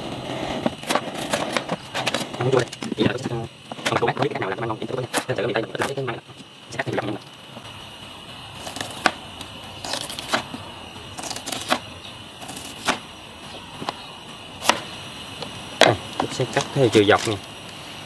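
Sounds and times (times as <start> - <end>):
knife cutting bamboo shoots: 8.6 - 9.2, 9.8 - 10.6, 11.2 - 13.0, 14.6 - 14.9.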